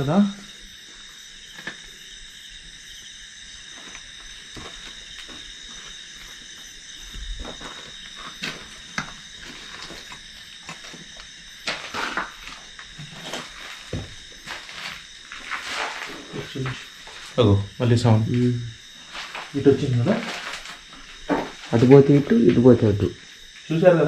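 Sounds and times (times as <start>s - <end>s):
night insects droning: 0.0s - 24.0s.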